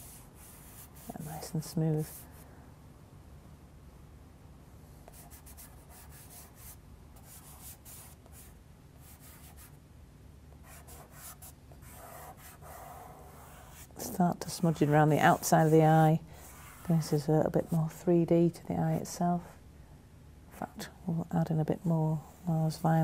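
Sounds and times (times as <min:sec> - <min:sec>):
charcoal rubbing on paper: 0:10.8 - 0:17.2.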